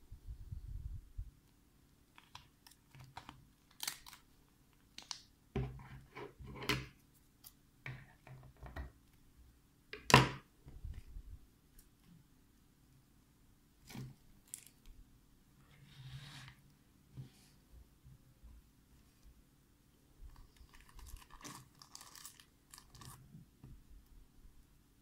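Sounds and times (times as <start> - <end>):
plastic packaging crinkling: 2.2 - 4.3, 20.3 - 23.2.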